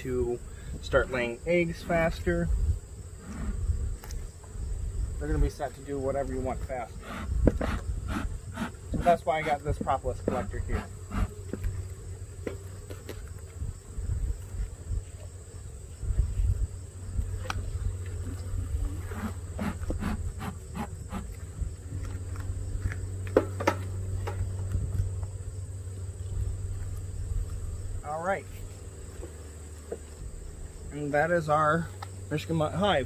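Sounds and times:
bees buzzing: 0:00.0 - 0:33.0.

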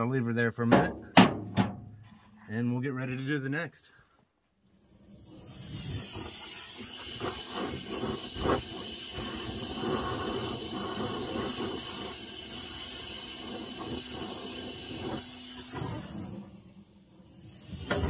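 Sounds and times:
gas torch flame hissing: 0:05.0 - 0:18.0.

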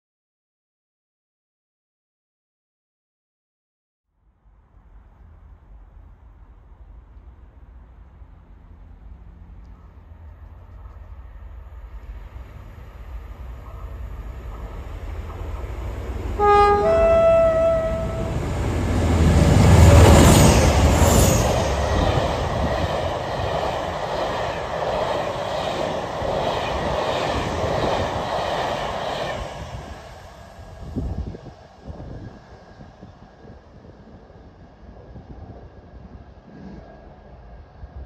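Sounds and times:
diesel locomotives passing: 0:04.4 - 0:38.0
two-note train horn: 0:16.4 - 0:18.6.

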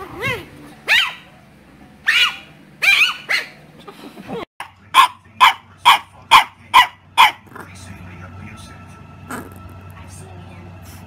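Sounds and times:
puppy yipping: 0:00.2 - 0:01.3, 0:02.0 - 0:03.6, 0:05.0 - 0:07.4.

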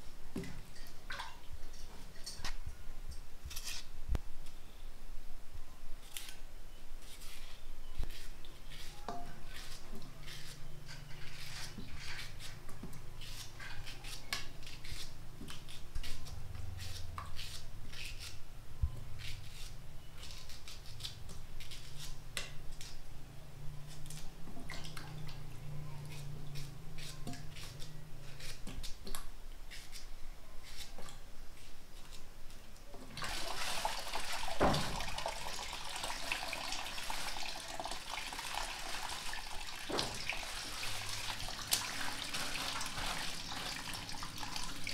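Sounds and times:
knife scraping through bananas: 0:03.5 - 0:03.9, 0:07.0 - 0:12.6, 0:13.2 - 0:18.4, 0:26.0 - 0:29.0.

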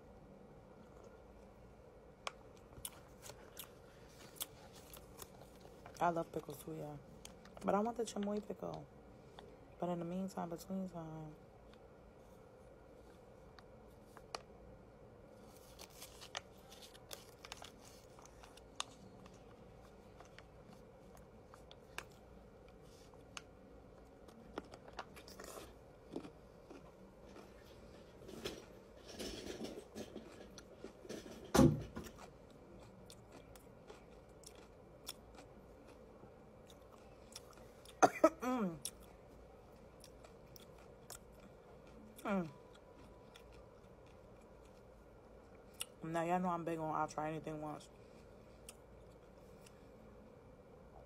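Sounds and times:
person chewing crunchy pickle: 0:02.5 - 0:07.6, 0:15.4 - 0:31.1, 0:31.9 - 0:38.0, 0:38.7 - 0:45.0.

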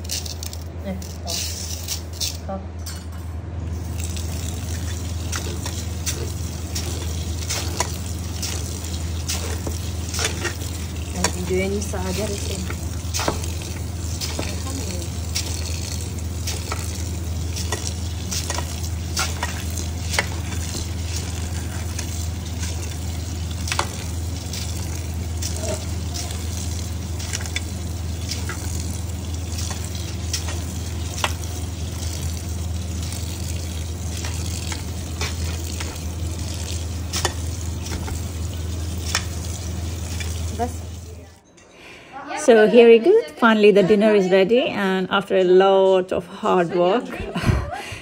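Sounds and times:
tap water running into pot: 0:03.7 - 0:41.3.

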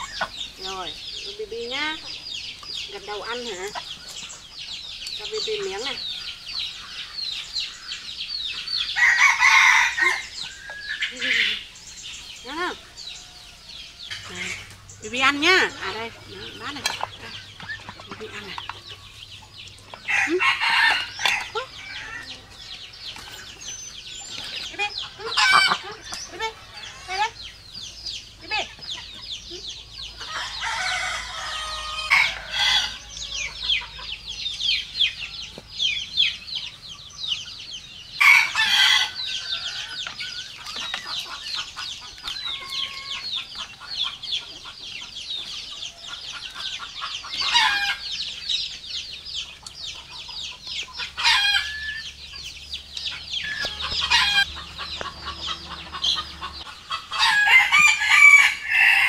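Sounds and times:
chickens clucking: 0:00.0 - 0:59.0
rooster crowing: 0:09.0 - 0:10.4, 0:20.1 - 0:22.6, 0:30.2 - 0:33.6, 0:38.2 - 0:40.0, 0:53.4 - 0:59.0.

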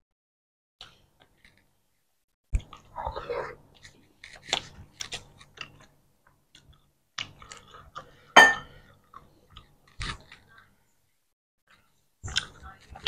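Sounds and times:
soft chewing: 0:00.8 - 0:01.8, 0:02.5 - 0:13.0.

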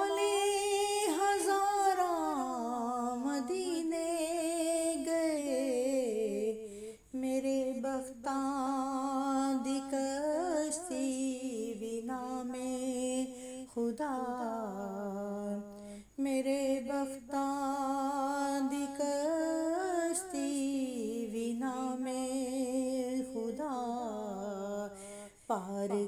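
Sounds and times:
woman singing: 0:00.0 - 0:26.0
singer breathing: 0:06.6 - 0:07.1, 0:13.3 - 0:13.7, 0:15.7 - 0:16.2, 0:25.0 - 0:25.5.

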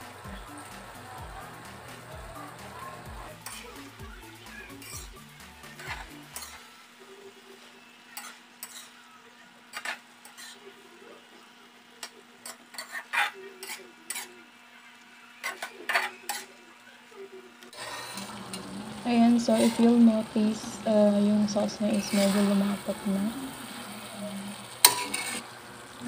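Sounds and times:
sauce sizzling: 0:00.0 - 0:15.7, 0:17.7 - 0:26.0
metal spatula scraping a wok: 0:03.4 - 0:03.8, 0:04.6 - 0:06.6, 0:08.1 - 0:09.0, 0:09.7 - 0:10.6, 0:12.4 - 0:14.4, 0:17.8 - 0:20.2, 0:21.5 - 0:23.2, 0:24.8 - 0:25.5.

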